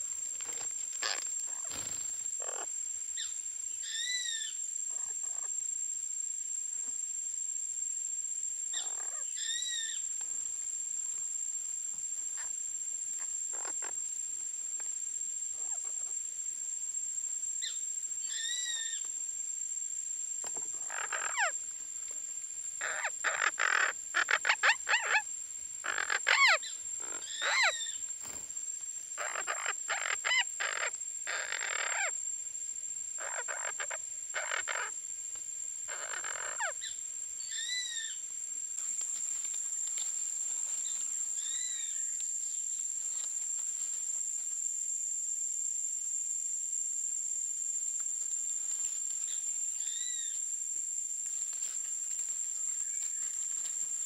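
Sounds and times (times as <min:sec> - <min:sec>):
parakeets squawking and chattering: 0:01.0 - 0:01.3, 0:20.9 - 0:21.5, 0:22.8 - 0:25.2, 0:25.8 - 0:27.8, 0:29.2 - 0:32.1, 0:35.9 - 0:36.8
parakeet call: 0:01.0 - 0:02.7, 0:20.8 - 0:21.6, 0:22.8 - 0:28.0, 0:29.2 - 0:32.1, 0:33.2 - 0:35.0, 0:35.9 - 0:38.2.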